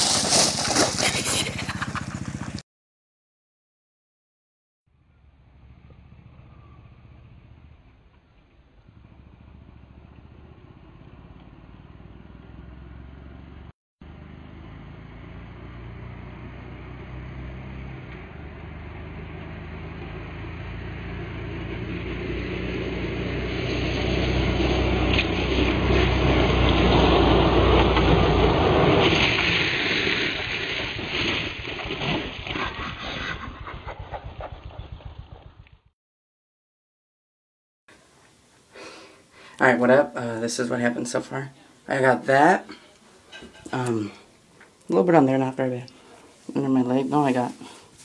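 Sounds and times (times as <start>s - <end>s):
knocks and scraping: 0.0s - 2.6s, 43.2s - 44.8s
quad engine approaching: 0.0s - 2.6s, 4.9s - 31.1s, 31.9s - 35.9s
tyres sliding across gravel: 0.0s - 2.6s, 23.8s - 32.5s.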